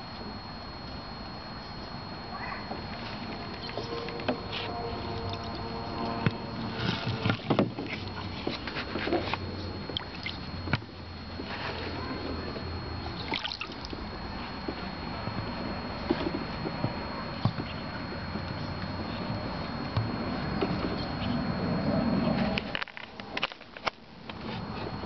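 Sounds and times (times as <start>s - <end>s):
water sloshing and splashing: 6.6s - 9.3s, 9.9s - 10.9s, 13.1s - 14.0s.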